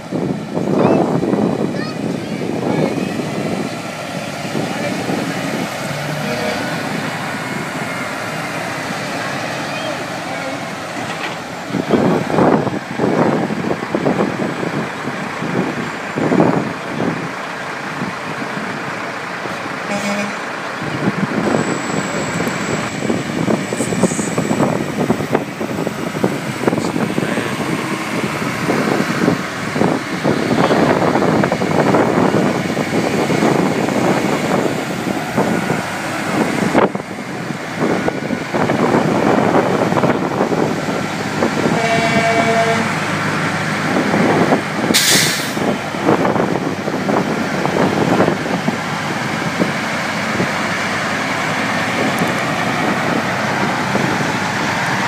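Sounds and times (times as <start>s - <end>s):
trucks driving past: 0.0s - 55.0s
truck horn: 5.9s - 7.2s, 19.8s - 20.6s, 41.5s - 43.5s.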